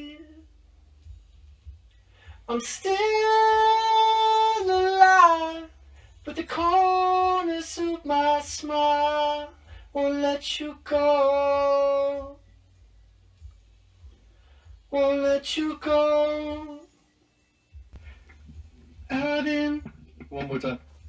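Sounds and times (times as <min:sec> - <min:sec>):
man singing unaccompanied: 0:00.0 - 0:00.5, 0:02.5 - 0:12.4, 0:14.8 - 0:17.0, 0:18.6 - 0:20.8.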